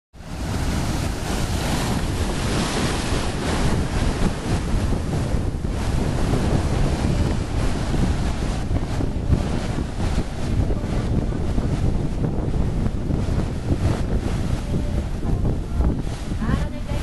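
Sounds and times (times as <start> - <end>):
surf breaking over rocks: 0.2 - 16.6
wind buffeting microphone: 0.2 - 17.0.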